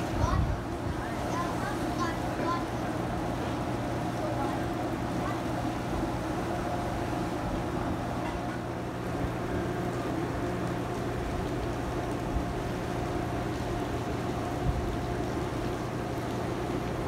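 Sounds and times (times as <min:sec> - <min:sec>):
wind noise: 0:00.0 - 0:01.1
low mechanical hum of engine: 0:00.0 - 0:17.0
sea noise: 0:00.0 - 0:17.0.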